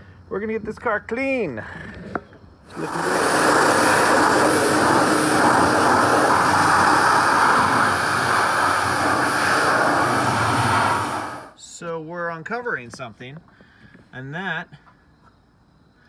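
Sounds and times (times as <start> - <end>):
pressure washer jet hissing on metal: 2.7 - 11.6.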